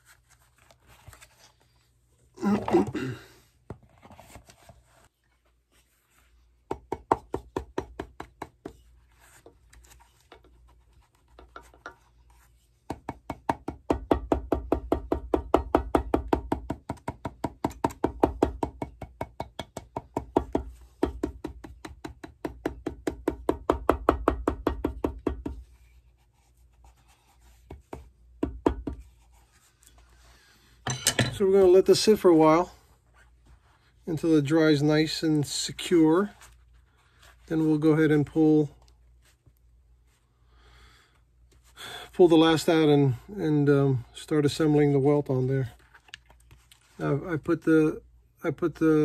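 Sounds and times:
hammer tapping leather shoe: 12.9 - 25.6.

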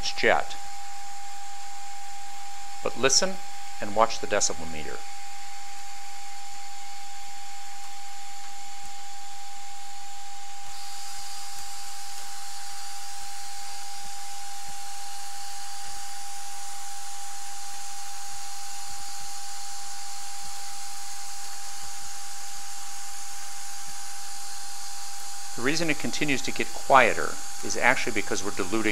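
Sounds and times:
steady high tone from loudspeaker: 0.0 - 0.6, 2.8 - 5.0, 25.6 - 28.9
helium jet hissing: 25.6 - 28.9.

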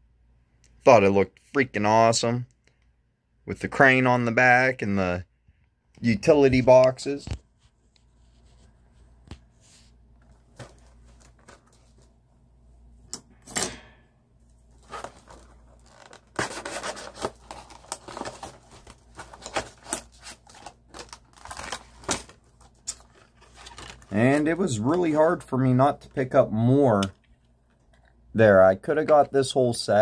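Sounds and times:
scrape: 9.6 - 10.0
plastic packaging crinkling: 14.8 - 25.3.

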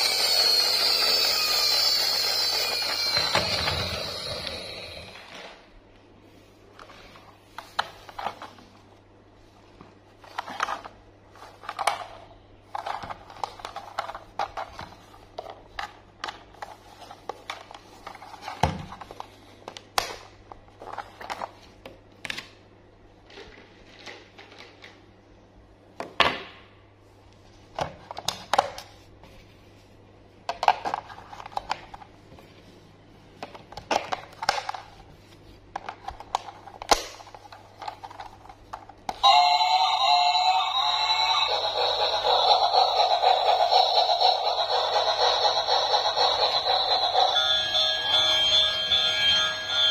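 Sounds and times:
plastic toy clicks and rattles: 41.1 - 47.4.

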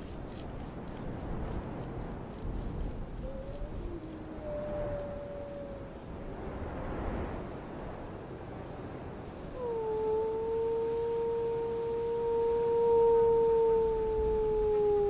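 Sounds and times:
man howling like a wolf: 3.2 - 6.0, 9.5 - 15.0.

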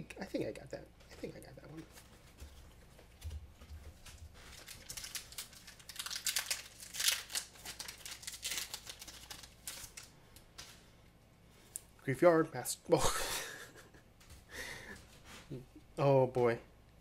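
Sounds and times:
foil wrapper crinkling and tearing: 4.0 - 10.8.

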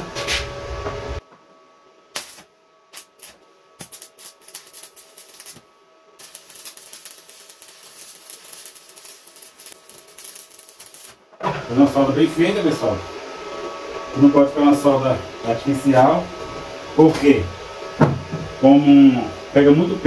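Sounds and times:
welding arc crackling: 2.1 - 11.3.

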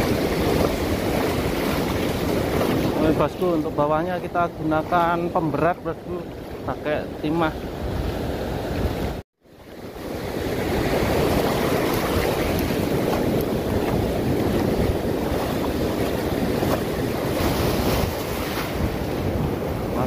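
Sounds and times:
surf breaking on beach: 0.0 - 5.3, 9.7 - 20.0
wind buffeting microphone: 0.0 - 9.2, 9.8 - 20.0.

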